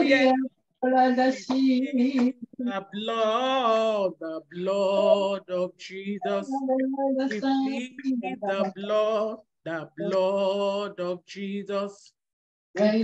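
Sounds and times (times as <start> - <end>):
woman singing worship chorus: 0.0 - 2.9, 6.2 - 10.4, 12.8 - 13.0.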